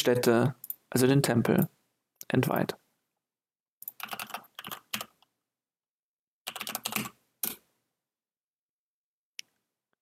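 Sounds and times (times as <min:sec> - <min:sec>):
typing on computer keyboard: 0:03.8 - 0:05.3, 0:06.5 - 0:07.6.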